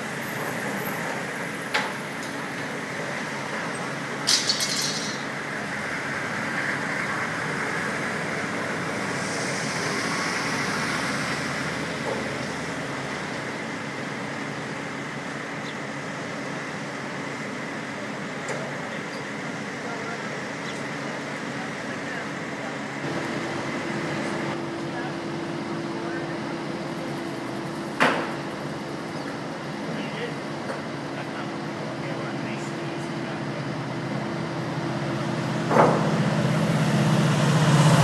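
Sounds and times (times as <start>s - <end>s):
street traffic noise: 0.0s - 38.0s
tools clinking on metal: 4.3s - 5.2s.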